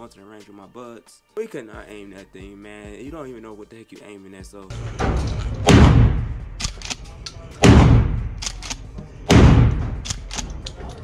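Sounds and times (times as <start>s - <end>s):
shotgun blasts echoing indoors: 4.7s - 10.7s
shotgun pump clacking: 6.6s - 7.4s, 8.3s - 8.9s, 9.8s - 11.0s.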